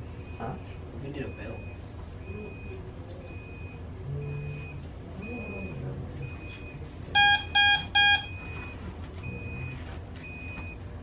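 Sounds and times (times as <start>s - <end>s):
medical equipment alarm beeping: 0.0s - 11.0s
louder lower alarm beeps: 7.2s - 10.8s.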